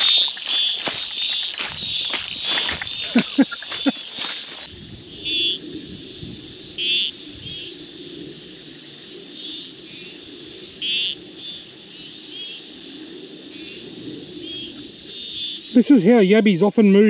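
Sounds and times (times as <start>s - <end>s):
high-pitched insect drone: 0.0s - 16.3s
low frog and insect chorus: 0.0s - 17.0s
short trilling frog calls: 5.2s - 5.6s, 6.8s - 7.8s, 10.8s - 12.7s, 14.4s - 15.8s.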